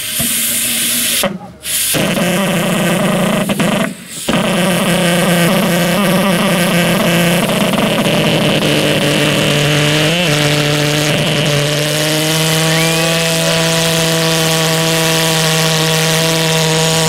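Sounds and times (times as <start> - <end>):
brief hiss: 0.0 - 2.2
pulse jet engine buzzing: 0.0 - 17.0.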